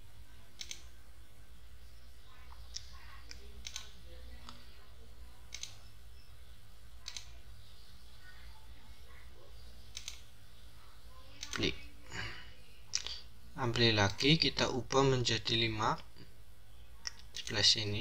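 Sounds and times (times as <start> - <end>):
steady low hum: 0.0 - 18.0
computer mouse clicking: 0.6 - 0.9, 2.5 - 4.6, 5.5 - 5.8, 7.0 - 7.3, 9.9 - 10.3.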